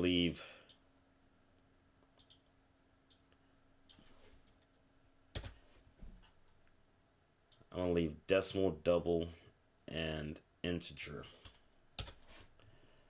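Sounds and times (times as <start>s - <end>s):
computer mouse clicks: 2.2s - 2.5s.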